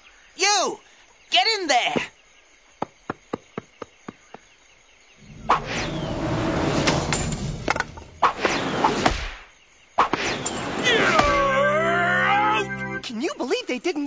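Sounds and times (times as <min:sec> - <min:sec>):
falling swish: 0:05.2 - 0:09.4
sharp whacks: 0:05.4 - 0:06.0, 0:08.2 - 0:11.5
cartoon clattering commotion: 0:10.0 - 0:11.7.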